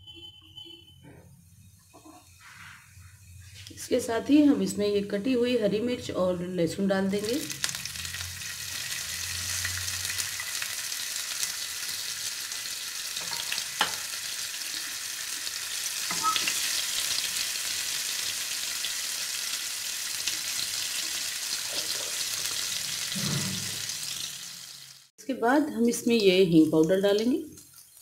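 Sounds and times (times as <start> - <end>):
food sizzling in hot oil: 7.0 - 25.1, 25.9 - 28.0.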